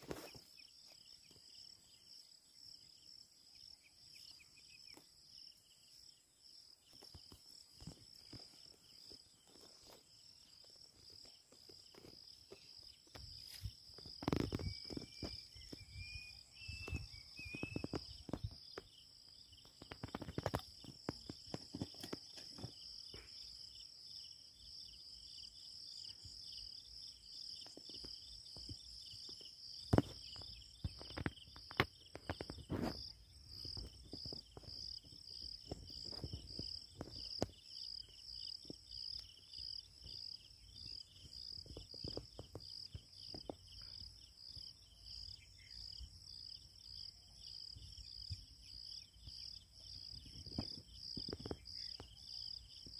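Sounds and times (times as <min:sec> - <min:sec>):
insects chirping: 0:00.0 - 0:52.9.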